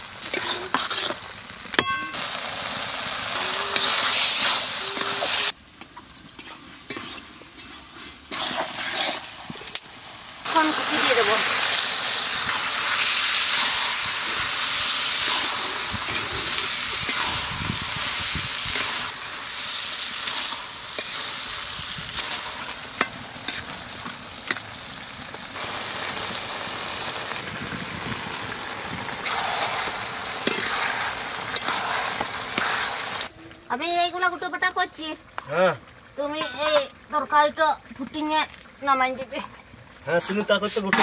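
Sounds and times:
curry sizzling in a metal pan: 0:00.0 - 0:41.0
spatula stirring and scraping: 0:00.2 - 0:01.3, 0:03.7 - 0:09.8, 0:13.4 - 0:24.7, 0:29.2 - 0:33.2, 0:39.4 - 0:41.0.

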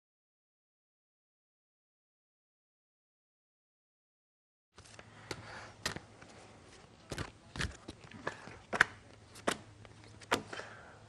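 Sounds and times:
papers rustling: 0:04.8 - 0:10.7.

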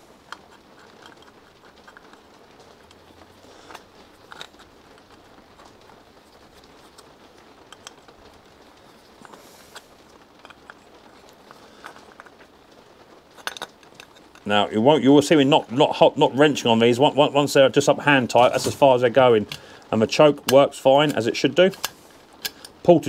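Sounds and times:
metal parts clicking and scraping: 0:00.0 - 0:14.5, 0:18.2 - 0:19.6, 0:20.3 - 0:22.8
low steady hiss: 0:00.0 - 0:23.0.

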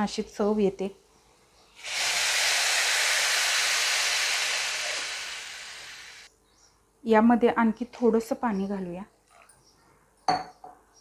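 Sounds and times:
water sizzling in hot pan: 0:01.8 - 0:06.3.

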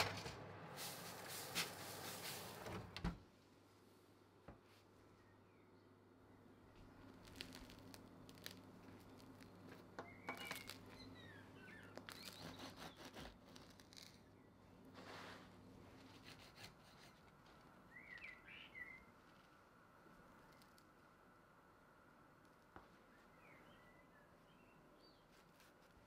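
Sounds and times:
bread crust crackling: 0:06.7 - 0:21.2, 0:25.2 - 0:26.0
small birds chirping: 0:08.4 - 0:14.7, 0:17.8 - 0:19.4, 0:22.9 - 0:25.9
bread knife sawing: 0:12.2 - 0:13.7, 0:16.1 - 0:17.2.

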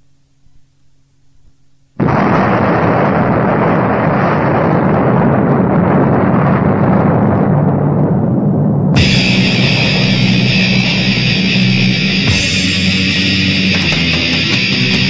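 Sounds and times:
faint tape hum: 0:00.0 - 0:03.0
lo-fi black metal music: 0:09.0 - 0:15.0.

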